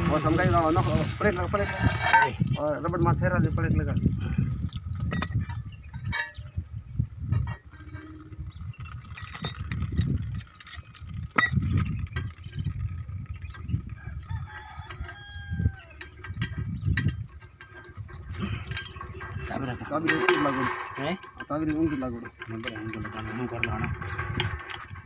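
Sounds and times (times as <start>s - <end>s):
low rumbling: 0.0s - 14.3s, 15.3s - 25.0s
rooster crowing: 14.0s - 16.0s
sharp clicks and knocks: 15.9s - 25.0s.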